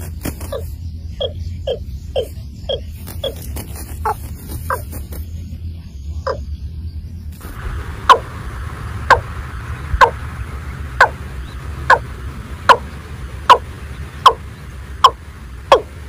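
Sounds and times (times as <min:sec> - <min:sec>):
steady low rumble: 0:00.0 - 0:16.0
bird calling downward-sweeping notes: 0:04.1 - 0:16.0.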